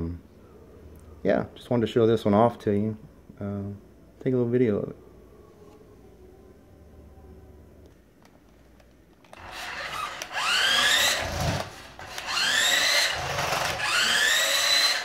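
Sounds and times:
electric motor whining: 9.3s - 15.0s.

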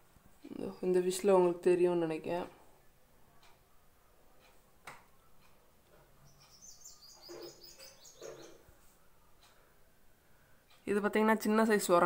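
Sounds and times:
small bird chirping: 6.2s - 9.6s.

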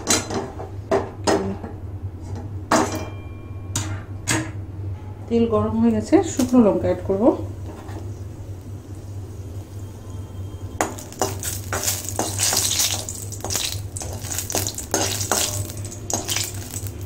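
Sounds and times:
chillies sizzling in hot oil: 8.8s - 17.0s
metal spoon scraping a pan: 10.8s - 16.9s.

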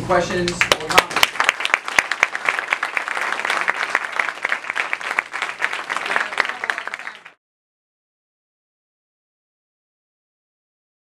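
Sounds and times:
audience applauding: 0.6s - 7.4s.

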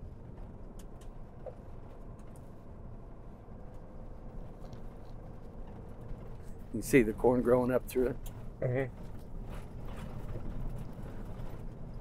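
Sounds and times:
faint clicks and rattles: 3.6s - 12.0s.

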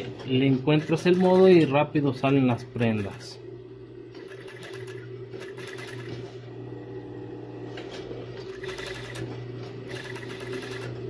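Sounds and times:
sewing machine motor humming: 0.7s - 3.2s, 4.1s - 6.4s, 8.2s - 11.0s
sewing machine stitching rattle: 4.2s - 6.2s, 8.4s - 9.2s, 9.9s - 10.9s.

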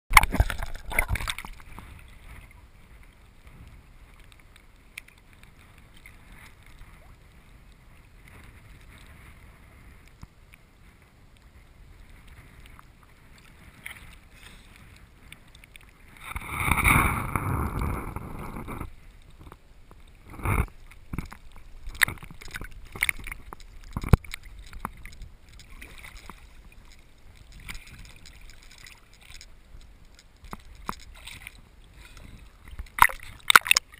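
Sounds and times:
water gushing: 0.1s - 1.7s, 32.9s - 33.9s
sharp water splashes: 0.1s - 2.0s, 21.1s - 29.5s, 32.7s - 33.9s
water lapping and sloshing: 0.1s - 33.9s.

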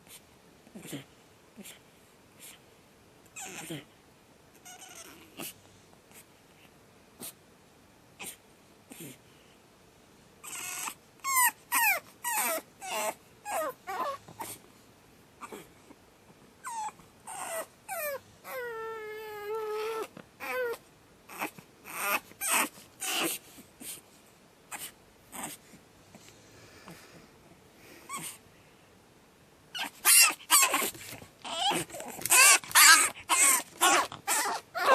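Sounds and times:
puppy screaming: 10.4s - 14.6s, 16.6s - 23.4s, 29.7s - 34.9s.

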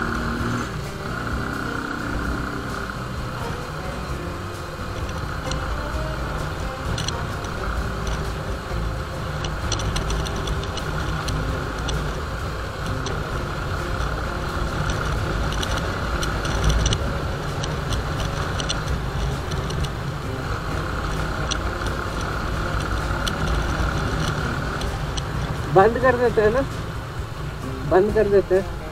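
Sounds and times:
bump: 0.0s - 28.9s
motorcycle engine running: 0.0s - 28.9s
wind rushing over microphone: 0.0s - 28.9s.

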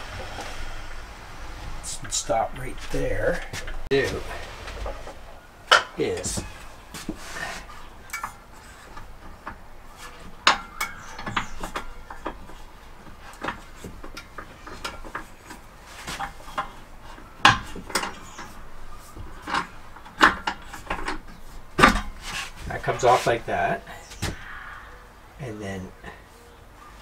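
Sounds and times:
hard parts knocking and rattling: 1.6s - 23.2s.

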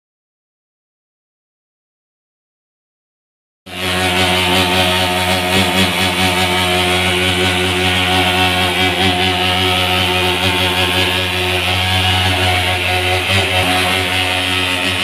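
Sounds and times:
fogging machine engine buzzing: 3.7s - 15.0s.

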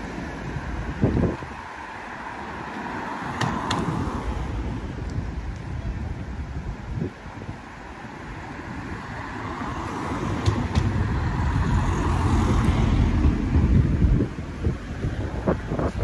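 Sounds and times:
car driving past: 9.2s - 14.1s.

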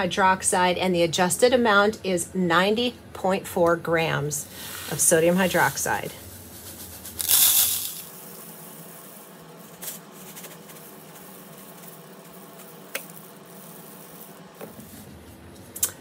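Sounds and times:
granules pouring into a plastic cup: 4.6s - 14.5s.

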